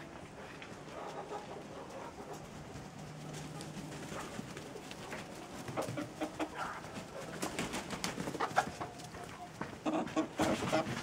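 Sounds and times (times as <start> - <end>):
chickens clucking softly: 0.0 - 11.0.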